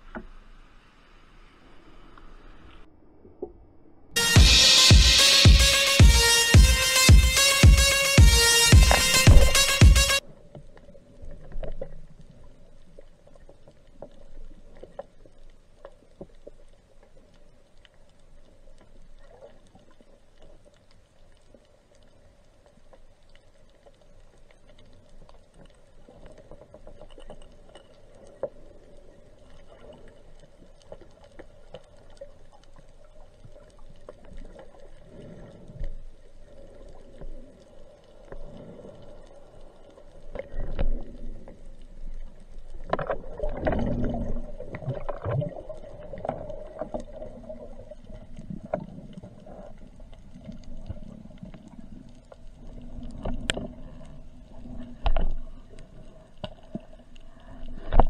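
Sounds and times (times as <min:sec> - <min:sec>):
knocks and clicks: 0:06.6 - 0:10.2
muffled underwater movement: 0:10.2 - 0:58.0
underwater rumbling: 0:10.2 - 0:58.0.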